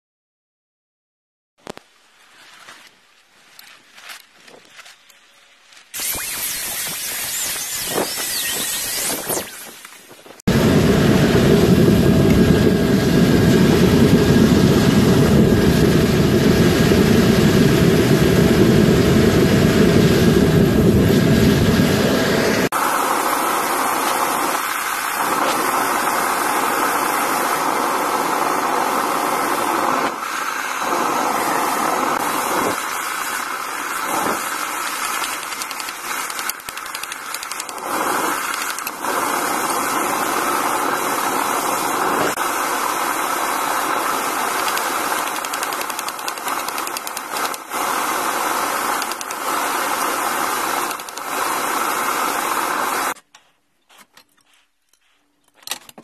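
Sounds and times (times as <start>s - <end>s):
forge roaring hiss: 10.4s - 53.2s.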